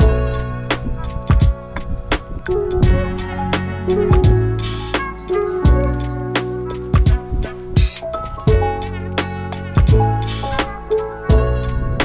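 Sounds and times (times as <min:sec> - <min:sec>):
drum hits: 0:00.0 - 0:06.1, 0:06.9 - 0:11.7.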